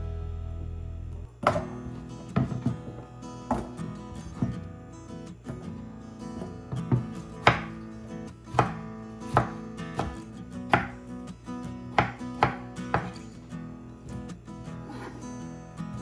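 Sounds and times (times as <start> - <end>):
soft acoustic guitar music: 0.0 - 16.0
knife chopping on wooden board: 6.7 - 7.8, 8.5 - 11.0, 12.0 - 13.2.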